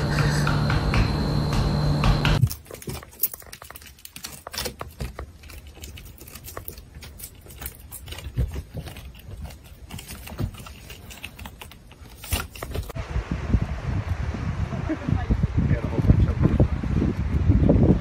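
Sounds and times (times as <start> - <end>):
hamster claws scrabbling on wall: 2.5 - 13.0
steady rushing noise: 13.0 - 18.0.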